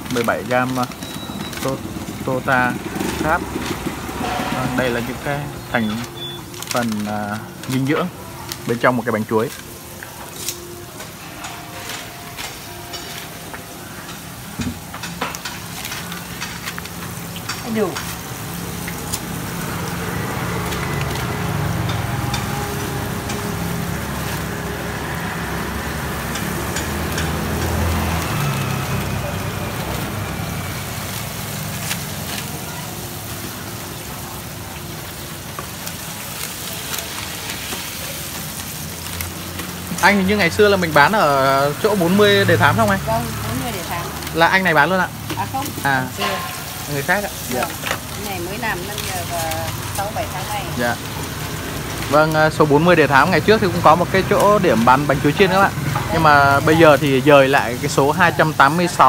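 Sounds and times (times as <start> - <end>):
food deep-frying in oil: 0.0 - 59.0
oil popping: 0.0 - 59.0.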